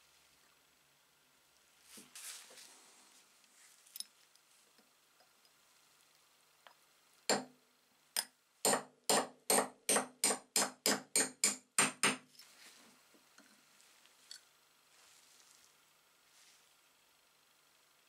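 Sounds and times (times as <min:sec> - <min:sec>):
hammer tapping metal punch: 0:07.3 - 0:07.5, 0:08.2 - 0:12.2.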